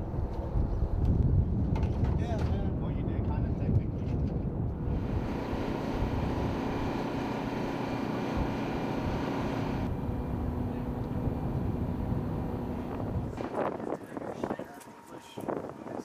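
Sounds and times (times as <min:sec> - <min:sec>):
wind rumbling on microphone: 0:00.0 - 0:07.7, 0:08.3 - 0:16.0
machinery drone: 0:04.8 - 0:13.8.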